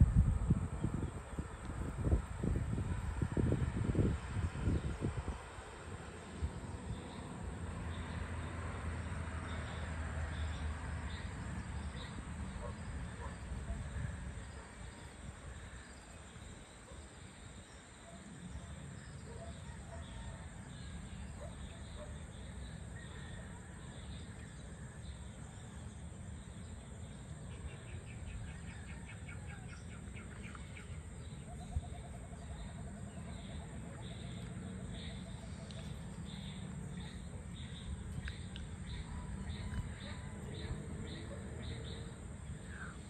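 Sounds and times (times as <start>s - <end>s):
steady low rumble: 0.0s - 5.5s
birds calling and chirping: 10.4s - 43.0s.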